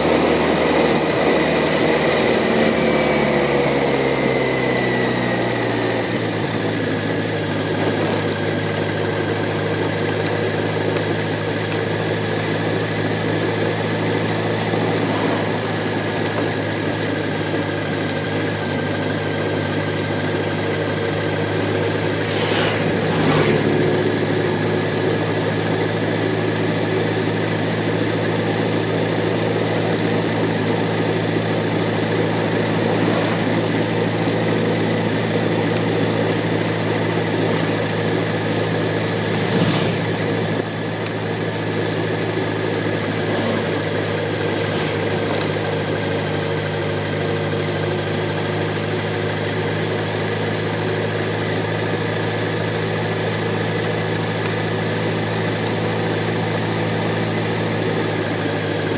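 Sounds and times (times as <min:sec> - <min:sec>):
road and wind noise: 0:00.0 - 0:19.0, 0:19.7 - 0:47.7
motorcycle engine running: 0:00.0 - 0:58.9.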